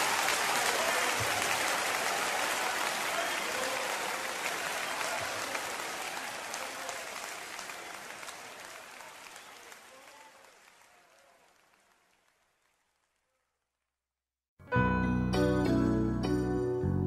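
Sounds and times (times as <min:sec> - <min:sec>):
congregation applauding: 0:00.0 - 0:13.4.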